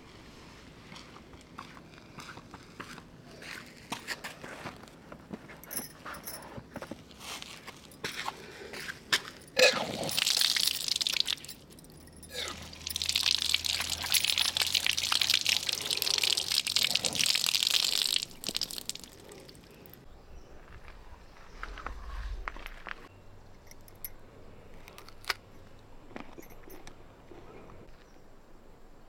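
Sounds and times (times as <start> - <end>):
tap water splashing on concrete: 12.6 - 19.4.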